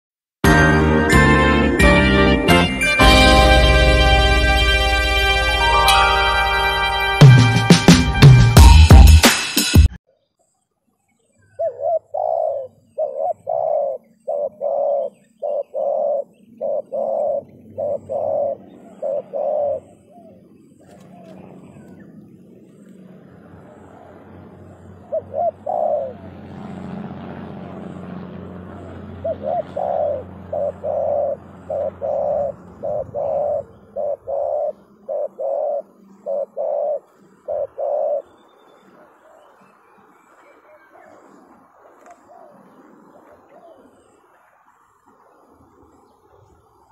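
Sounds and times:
dove cooing: 11.5 - 27.0, 27.8 - 39.7, 40.3 - 44.2.

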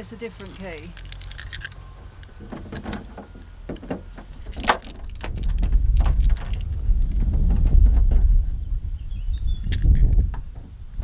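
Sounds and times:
keys jangling and clicking in lock: 0.4 - 8.9, 9.6 - 10.2.

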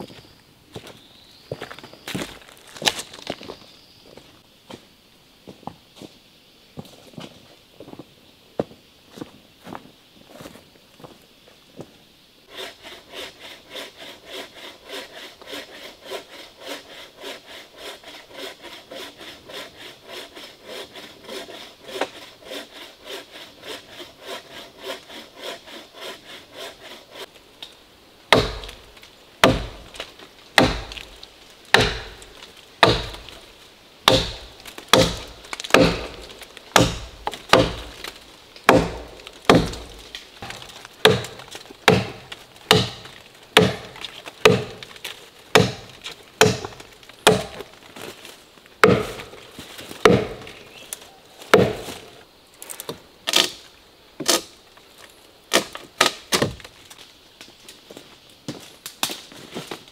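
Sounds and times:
saw cutting wood: 12.5 - 27.3, 30.6 - 33.4, 34.1 - 44.8
hatchet chopping log: 28.3 - 33.4, 34.0 - 47.7, 48.8 - 49.4, 50.0 - 50.8, 51.5 - 52.0.

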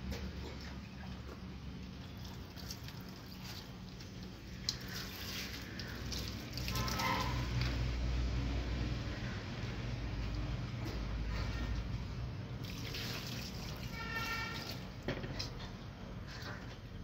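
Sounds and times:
water pouring and splashing: 0.1 - 8.2, 12.6 - 15.6.

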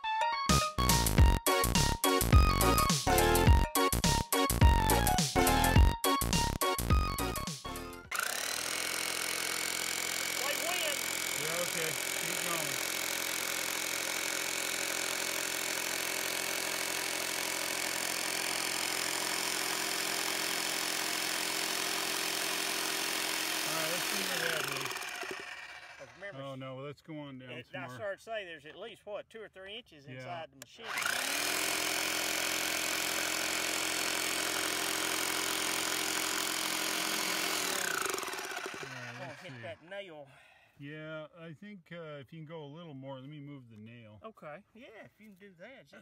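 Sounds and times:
electric rotary hammer running: 8.0 - 26.4, 30.8 - 39.8.

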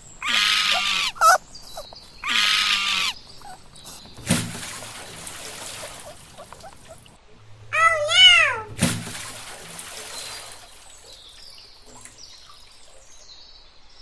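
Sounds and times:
drawn-out animal calls: 0.0 - 7.2.

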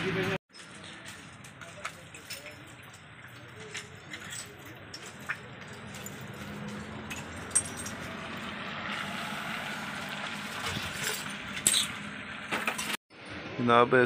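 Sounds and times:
bottles and glass clinking: 0.5 - 8.5, 10.6 - 13.0.

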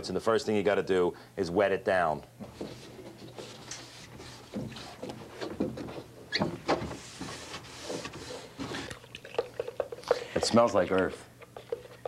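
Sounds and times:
sponge rubbing on wood: 6.9 - 8.9.

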